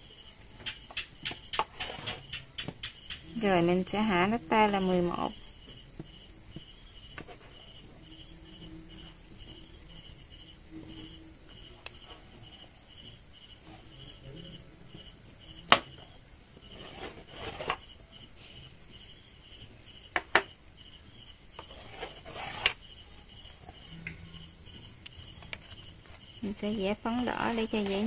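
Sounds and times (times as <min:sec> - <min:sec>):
cricket chirping: 0:00.0 - 0:28.0
scraping and rustling on fabric: 0:01.6 - 0:02.4, 0:16.6 - 0:18.6, 0:21.6 - 0:24.0, 0:25.4 - 0:28.0.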